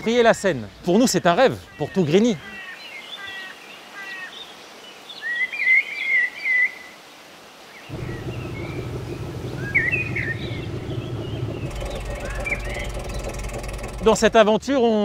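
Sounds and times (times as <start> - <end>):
songbirds chirping: 0.0 - 15.0
barge engine drone: 7.9 - 14.5.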